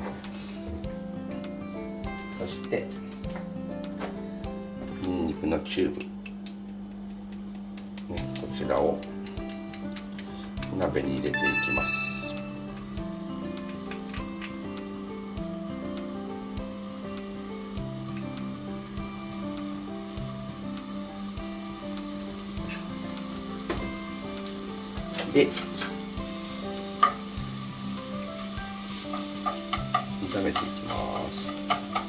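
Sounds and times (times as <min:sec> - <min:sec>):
ginger and garlic sizzling in oil: 0:00.2 - 0:00.7, 0:11.0 - 0:32.0
utensils knocking against pot: 0:29.1 - 0:32.0.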